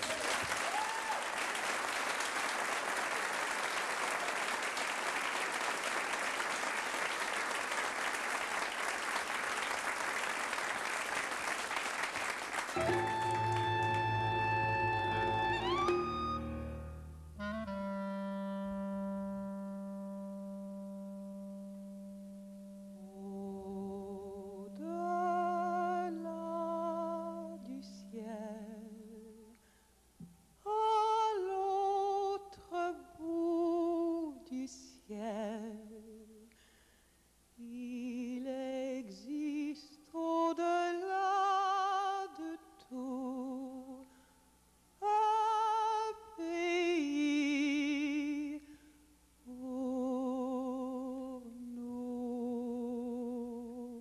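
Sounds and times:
clarinet held note: 0:12.8 - 0:23.2
woman singing with vibrato: 0:22.9 - 0:29.6, 0:30.6 - 0:36.5, 0:37.6 - 0:44.1, 0:45.0 - 0:48.7, 0:49.4 - 0:54.0.

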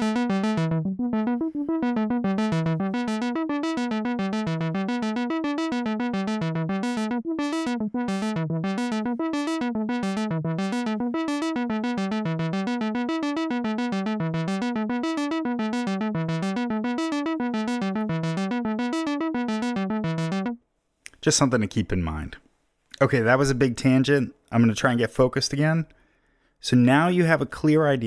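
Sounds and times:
synthesizer low note sequence: 0:00.0 - 0:20.6.

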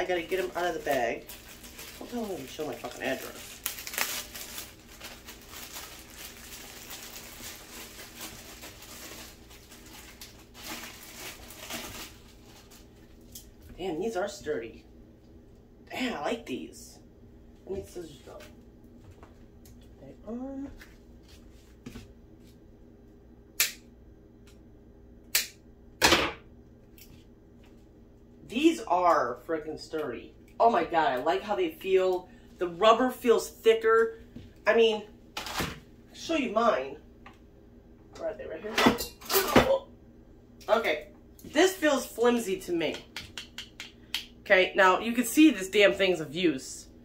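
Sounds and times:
plastic bag rustling: 0:00.0 - 0:13.4.

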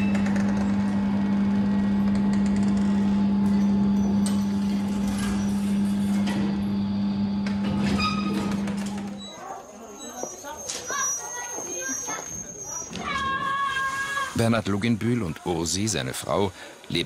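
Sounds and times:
machine motor hum: 0:00.0 - 0:09.3.

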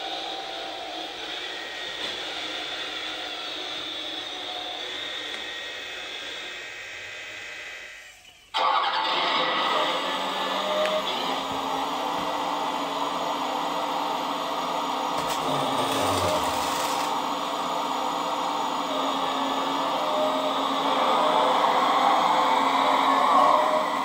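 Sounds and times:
hydraulic pump whirring: 0:00.1 - 0:17.5.

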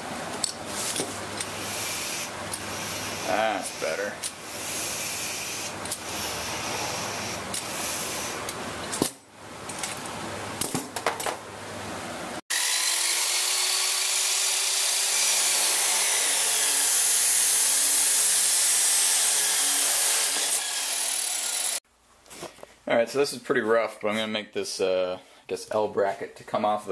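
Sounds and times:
chop saw cutting steel: 0:01.4 - 0:09.2, 0:12.5 - 0:21.8.

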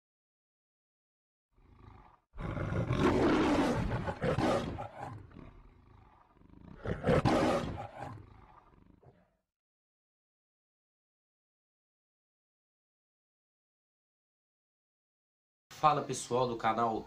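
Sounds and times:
animal roaring: 0:01.6 - 0:09.4.

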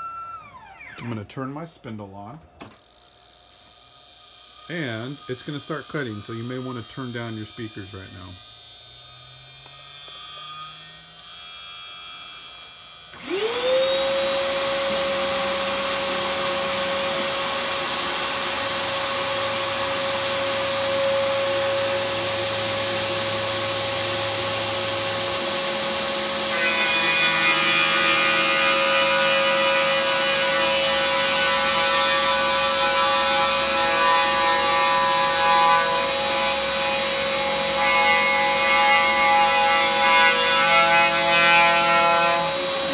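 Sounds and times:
router spindle humming: 0:00.0 - 0:01.3, 0:04.4 - 0:42.9
cutter sawing wood: 0:04.7 - 0:08.4, 0:13.1 - 0:42.9.

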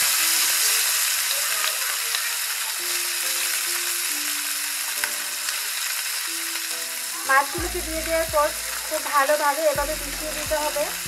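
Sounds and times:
fish sizzling in hot oil: 0:00.0 - 0:11.0
soft background music: 0:02.8 - 0:11.0.

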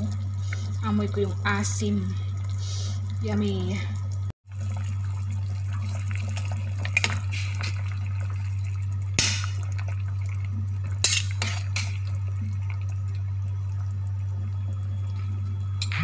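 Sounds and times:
steady low hum: 0:00.0 - 0:16.0
soup sloshing in pot: 0:04.0 - 0:15.4.

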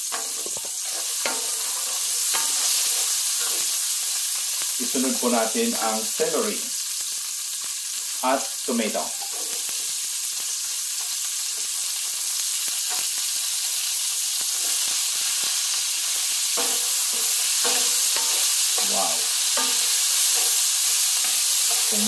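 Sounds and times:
spatula scraping and tapping pan: 0:00.0 - 0:04.7, 0:09.2 - 0:10.0, 0:14.4 - 0:22.0
vegetables sizzling in oil: 0:00.0 - 0:22.0.

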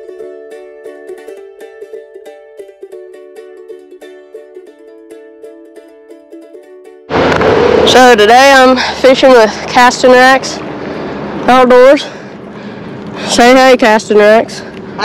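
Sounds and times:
plucked string instrument: 0:00.0 - 0:08.3.

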